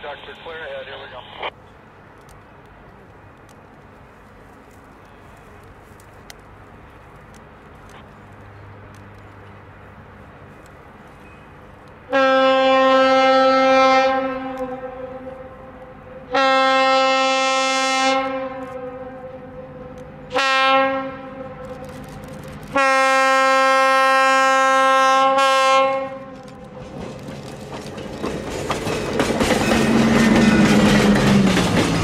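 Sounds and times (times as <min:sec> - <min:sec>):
railcar air horn blasts: 0:12.1 - 0:22.0, 0:22.7 - 0:26.6.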